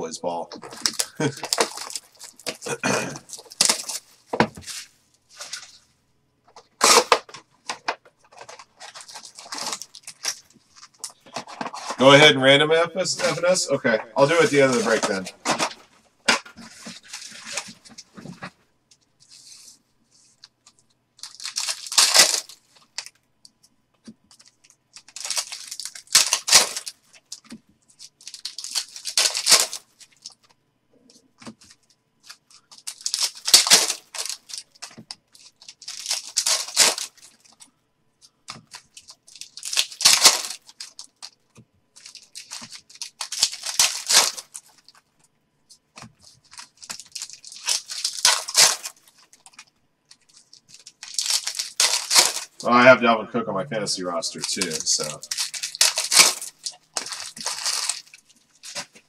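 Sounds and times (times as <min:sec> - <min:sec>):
card pack wrappers ripping: 0:00.6 - 0:05.8, 0:06.8 - 0:12.2, 0:14.2 - 0:18.4, 0:21.2 - 0:23.1, 0:24.3 - 0:30.4, 0:31.4 - 0:37.6, 0:38.5 - 0:41.4, 0:42.0 - 0:45.0, 0:46.0 - 0:52.8, 0:54.3 - 0:59.0.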